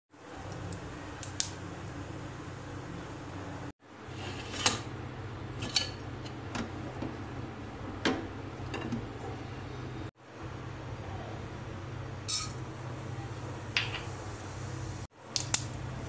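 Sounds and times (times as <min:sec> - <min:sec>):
utensils and dishes clinking: 0:05.6 - 0:07.1.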